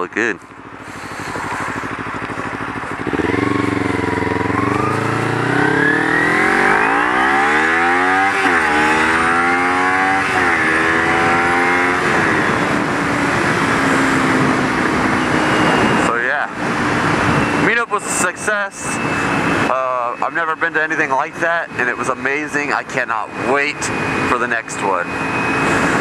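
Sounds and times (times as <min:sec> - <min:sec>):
motorcycle engine accelerating: 0:00.0 - 0:17.8.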